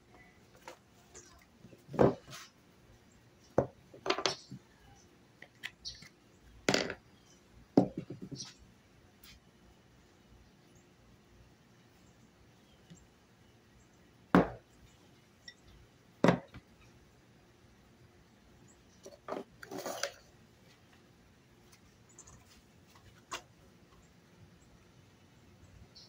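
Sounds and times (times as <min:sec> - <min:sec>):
knocks on wooden table: 0:16.2 - 0:16.5.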